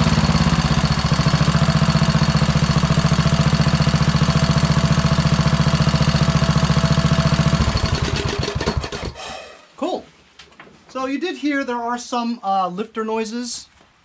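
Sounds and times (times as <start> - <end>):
lawn tractor engine running: 0.0 - 9.2.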